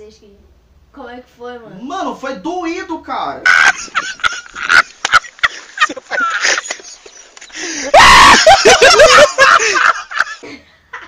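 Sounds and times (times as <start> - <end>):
man screaming: 7.8 - 9.6.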